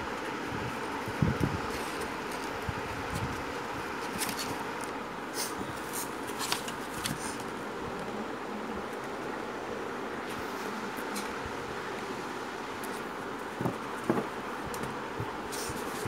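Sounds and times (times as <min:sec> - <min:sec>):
steady background hum: 0:00.0 - 0:16.0
kittens rustling paper bag: 0:05.4 - 0:07.6.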